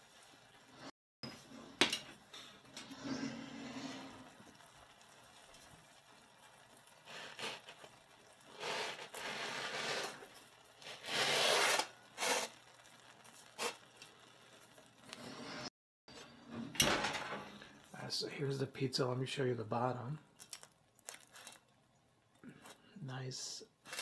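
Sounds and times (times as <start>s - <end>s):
pizza scraping on steel: 2.8s - 4.3s, 8.5s - 12.8s.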